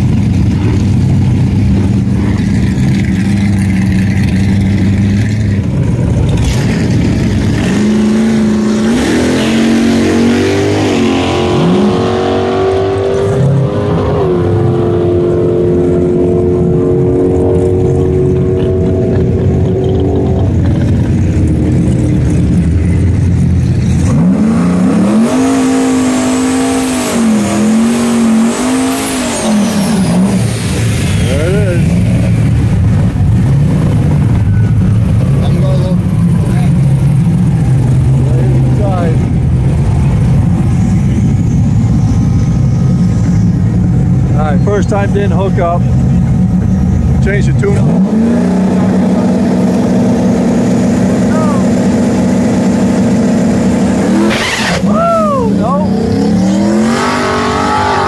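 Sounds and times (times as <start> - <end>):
engine revving: 0.0 - 58.0.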